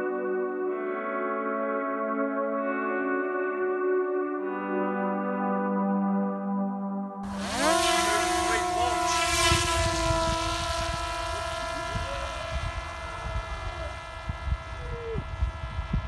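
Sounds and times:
electric motor and propeller whine: 7.2s - 16.0s
wind rumble on microphone: 7.3s - 16.0s.

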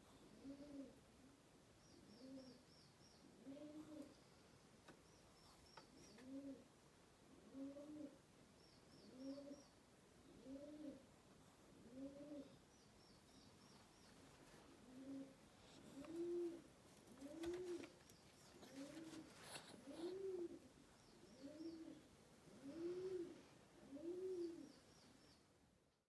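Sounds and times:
pigeon cooing: 0.1s - 1.1s, 2.0s - 2.6s, 3.2s - 4.2s, 5.7s - 6.7s, 7.3s - 8.2s, 9.0s - 11.1s, 11.7s - 12.6s, 14.1s - 24.8s
small birds chirping: 1.7s - 6.6s, 8.5s - 11.0s, 12.0s - 23.4s, 24.0s - 25.6s.

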